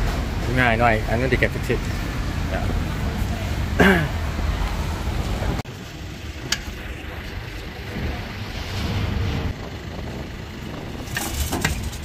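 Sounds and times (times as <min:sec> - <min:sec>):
traffic rumble: 0:00.0 - 0:12.0
wind on microphone: 0:07.9 - 0:12.0.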